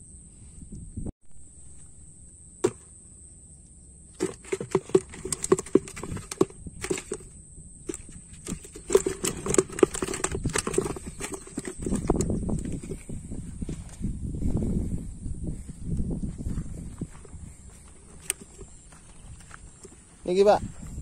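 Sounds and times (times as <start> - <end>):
fish flapping in plastic bucket: 4.2 - 7.3, 7.9 - 12.8.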